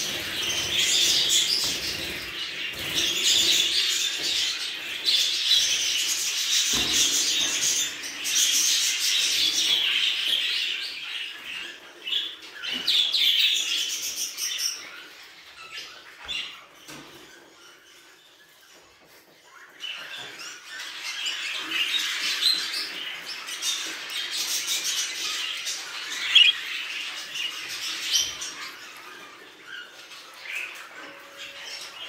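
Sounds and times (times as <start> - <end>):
budgerigars chattering and warbling: 25.8 - 27.9.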